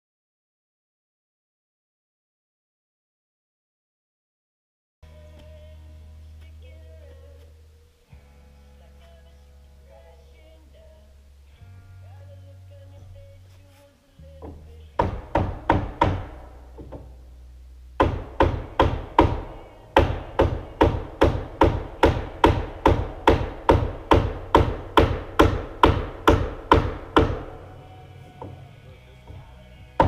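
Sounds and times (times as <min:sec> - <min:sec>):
faint low music: 0:05.0 - 0:30.0
hammer striking wood: 0:14.4 - 0:17.1, 0:18.0 - 0:27.7, 0:28.4 - 0:30.0.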